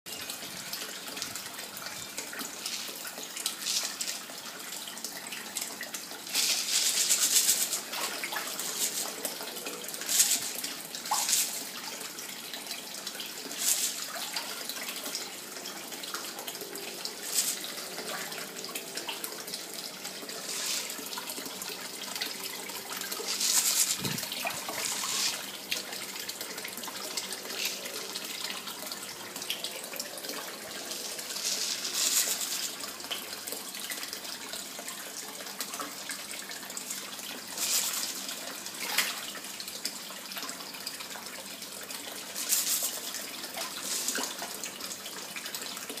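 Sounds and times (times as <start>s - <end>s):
water running into tank: 0.1s - 46.0s
fish splashing at surface: 20.2s - 25.6s.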